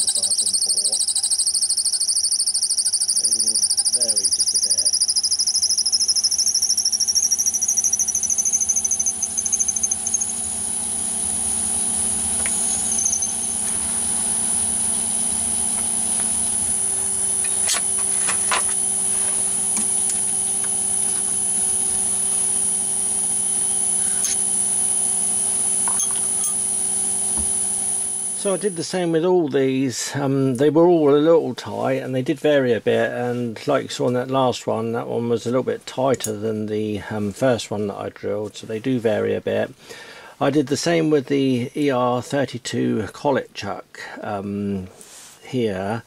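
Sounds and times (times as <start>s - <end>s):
drill squealing in steel: 0.0s - 11.1s, 12.4s - 15.3s
lathe whining and humming: 2.4s - 28.8s.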